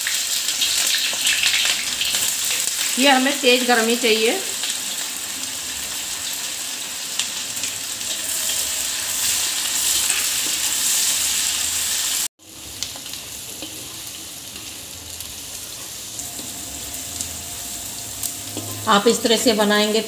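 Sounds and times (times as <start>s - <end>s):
onions sizzling in oil: 0.0s - 20.0s.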